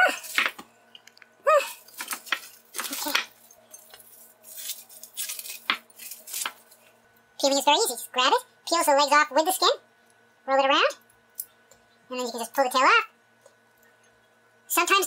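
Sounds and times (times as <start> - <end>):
cling wrap crinkling: 1.7 - 7.0.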